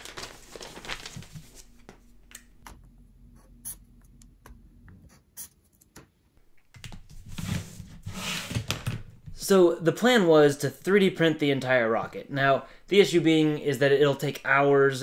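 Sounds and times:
paper handling: 0.0 - 2.4.

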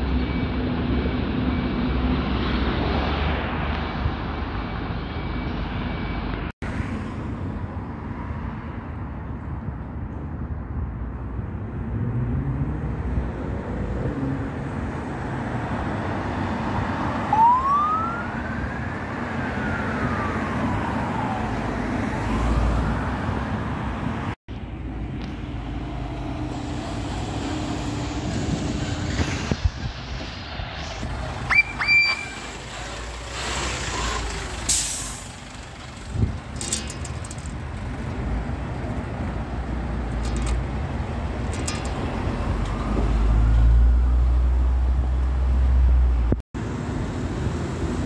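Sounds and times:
road traffic: 0.0 - 48.0
fire truck siren wailing: 17.2 - 22.5.

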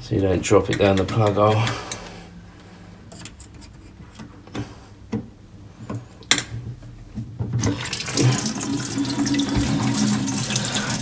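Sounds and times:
water splashing into metal sink: 7.6 - 11.0.

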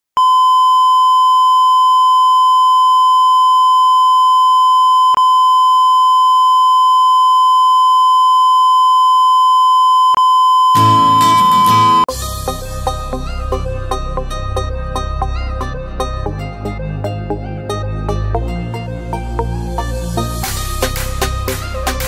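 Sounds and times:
high electronic beep tone: 0.2 - 12.1.

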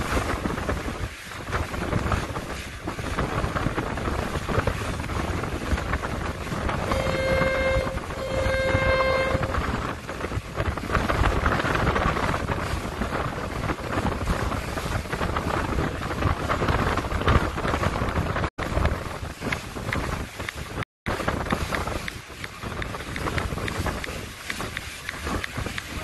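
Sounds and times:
rush of boat through water: 0.0 - 26.0
wind buffeting microphone: 0.0 - 26.0.

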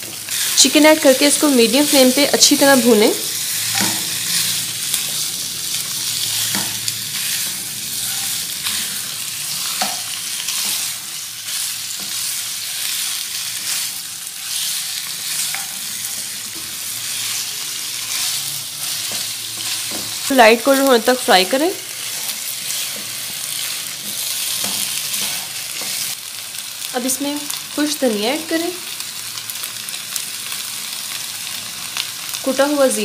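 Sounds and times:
chicken sizzling in hot oil: 0.0 - 33.0
spatula scraping and knocking pan: 18.1 - 20.3.

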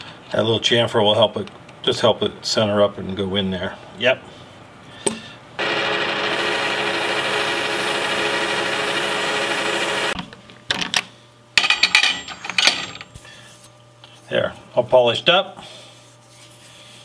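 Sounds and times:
lathe whirring: 5.6 - 10.2.

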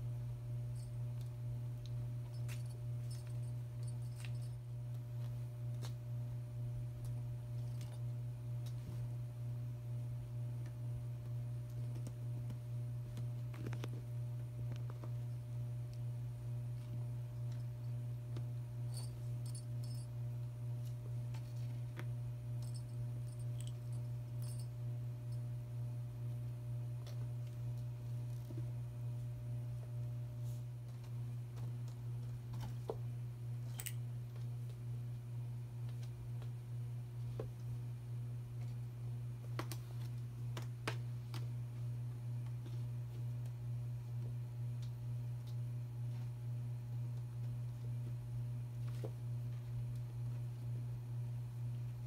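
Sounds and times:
steady low hum: 0.0 - 52.0
light clicks and tinkles: 0.7 - 4.6, 18.8 - 20.1, 22.6 - 25.5.

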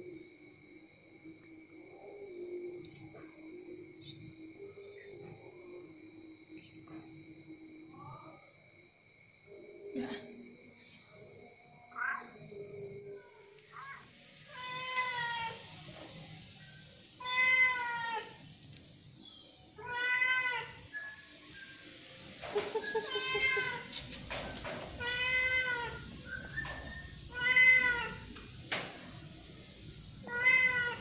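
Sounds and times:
cat meowing: 23.0 - 23.9, 25.0 - 26.1, 27.3 - 28.3, 30.2 - 31.0.

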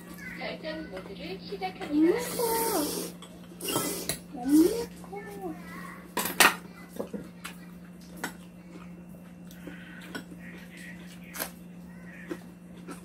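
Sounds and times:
steady low hum: 0.0 - 13.0
eating sounds: 2.0 - 6.1, 6.7 - 13.0.

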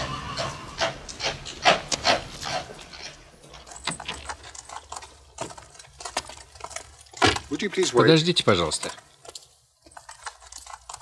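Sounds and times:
horse hooves clopping on road: 0.0 - 11.0
carriage creaks and clicks: 0.4 - 11.0.

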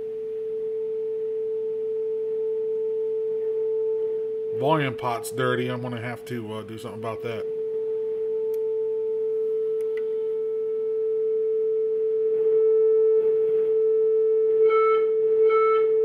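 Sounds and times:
sine test tone: 0.0 - 16.0.

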